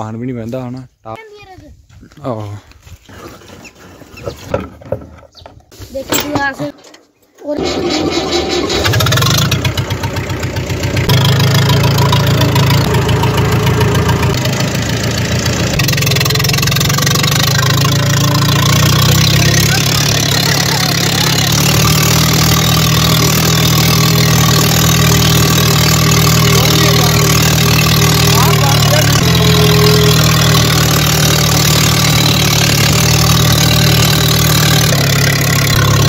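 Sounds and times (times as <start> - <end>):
tractor engine chugging: 7.5 - 36.0.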